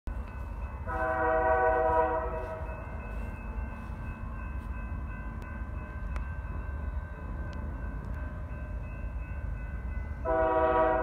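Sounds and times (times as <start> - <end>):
distant locomotive air horn: 0.8 - 2.8, 10.2 - 11.0.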